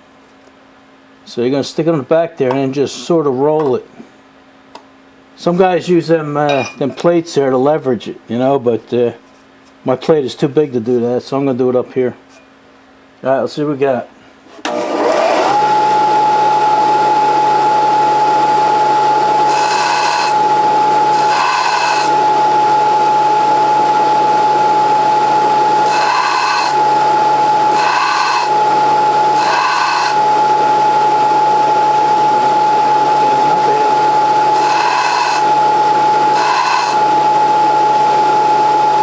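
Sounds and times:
belt sander whine: 0:14.7 - 0:39.0
drill bit grinding on sander belt: 0:14.7 - 0:39.0.

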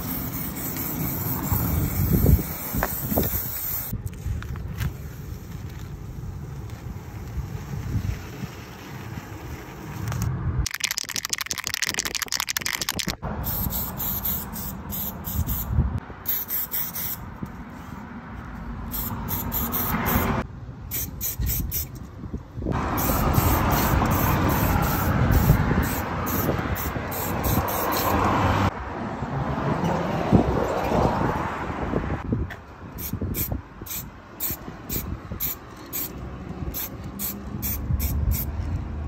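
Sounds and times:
spray can rattling: 0:00.0 - 0:04.0, 0:10.1 - 0:15.6, 0:23.0 - 0:28.2, 0:33.0 - 0:38.5
spray paint cans hissing: 0:00.0 - 0:17.2, 0:18.9 - 0:22.0, 0:22.7 - 0:28.3, 0:33.0 - 0:38.7.

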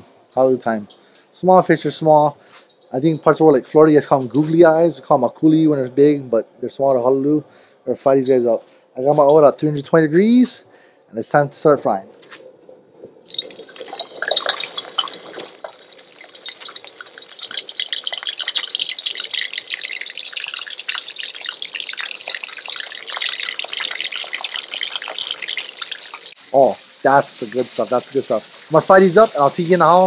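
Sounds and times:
fish sizzling in oil: 0:13.3 - 0:30.0.

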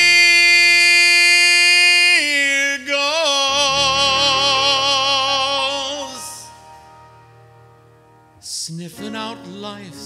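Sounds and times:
man singing held notes: 0:03.5 - 0:06.4
low bass note: 0:03.6 - 0:06.2.

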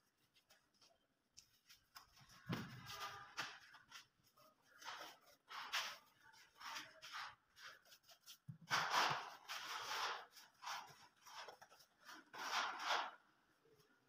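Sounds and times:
spatulas scraping glue: 0:04.0 - 0:13.3.

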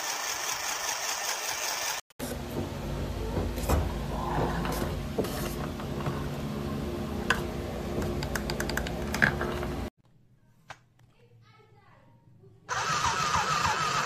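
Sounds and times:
low mechanical hum: 0:02.2 - 0:12.6.

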